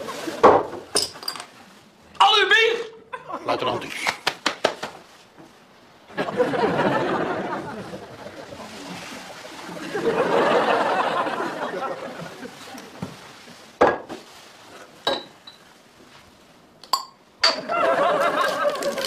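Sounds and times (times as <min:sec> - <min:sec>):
glass bottles clinking down: 0:00.9 - 0:01.5, 0:16.9 - 0:17.8
studio audience laughter: 0:06.1 - 0:08.9, 0:09.6 - 0:12.8, 0:17.6 - 0:19.0.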